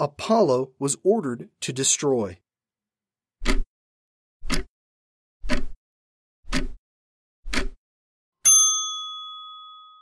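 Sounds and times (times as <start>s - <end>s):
bell ding: 8.4s - 10.0s.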